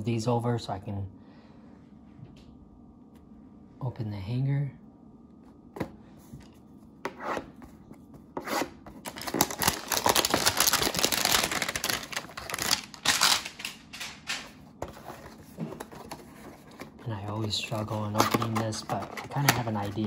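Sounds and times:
packaging rustling and tearing: 8.9s - 20.0s.

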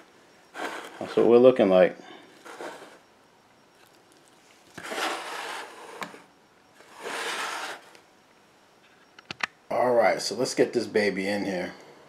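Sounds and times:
scraping on metal sheet pan: 2.4s - 3.0s, 4.8s - 6.2s, 6.8s - 7.9s.

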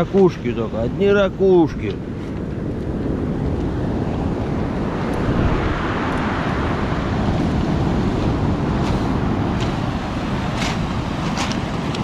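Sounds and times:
wind buffeting microphone: 0.0s - 12.0s
surf breaking on pebble beach: 4.3s - 12.0s.

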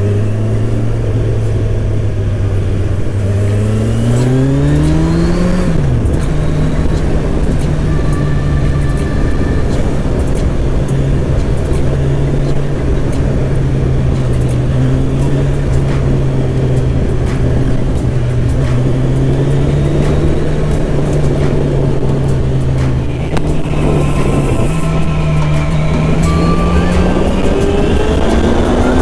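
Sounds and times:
motorcycle engine cruising: 0.0s - 29.0s
road and wind noise: 0.0s - 29.0s.

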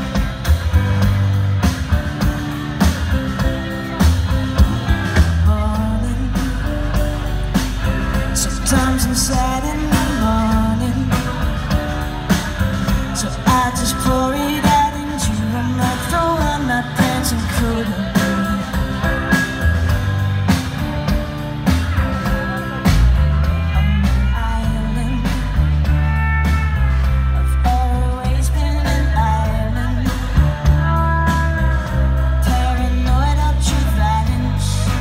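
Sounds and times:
bass guitar: 0.0s - 35.0s
drums: 0.0s - 35.0s
electric guitar: 0.0s - 35.0s
woman singing: 5.5s - 6.7s, 8.4s - 11.5s, 13.2s - 19.0s, 23.7s - 25.6s, 27.6s - 35.0s.

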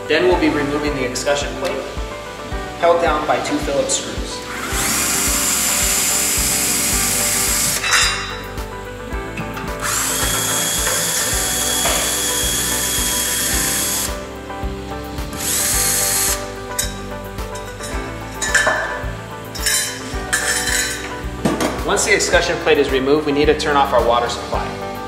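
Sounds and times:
background music with steady beat: 0.0s - 25.0s
cordless drill running: 4.5s - 8.0s, 9.8s - 14.2s, 15.4s - 16.5s.

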